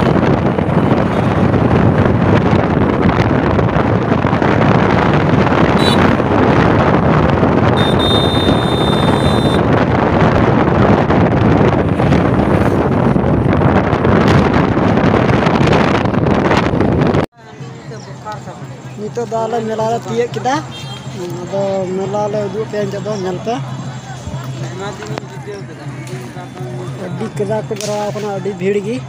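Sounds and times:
wind buffeting microphone: 0.0s - 17.3s
road and engine noise: 0.0s - 29.0s.

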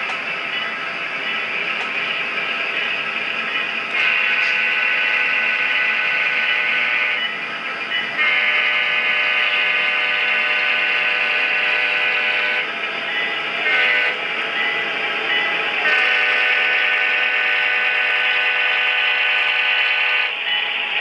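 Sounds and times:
model locomotive air horn blasts: 4.0s - 7.2s, 8.2s - 12.7s, 13.6s - 14.2s, 15.8s - 20.4s.

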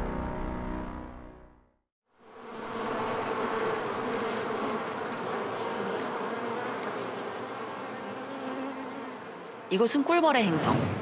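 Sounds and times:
honeybees buzzing in hive: 2.1s - 10.2s.

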